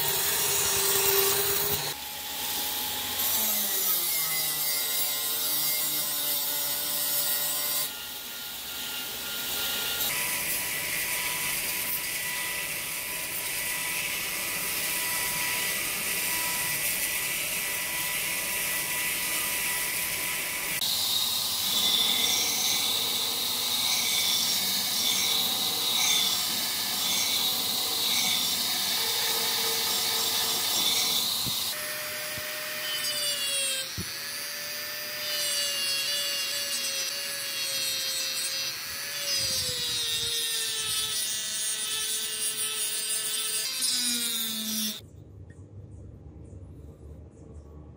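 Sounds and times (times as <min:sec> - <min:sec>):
belt grinder motor whine: 0:08.6 - 0:40.3.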